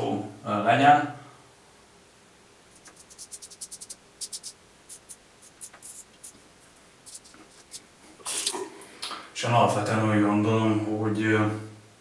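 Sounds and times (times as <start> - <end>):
razor scraping stubble: 2.8 - 8.6.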